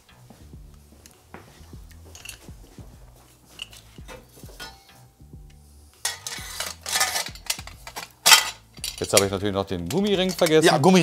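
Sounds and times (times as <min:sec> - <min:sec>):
quiet background music: 0:00.0 - 0:11.0
metallic scrape and clatter: 0:03.3 - 0:05.0, 0:06.0 - 0:10.7
metal exhaust parts clinking: 0:03.5 - 0:05.0, 0:06.0 - 0:10.9.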